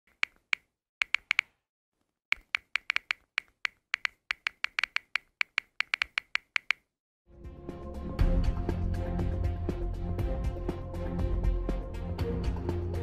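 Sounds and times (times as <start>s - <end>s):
phone keyboard clicks: 0.1s - 1.6s, 2.3s - 6.9s.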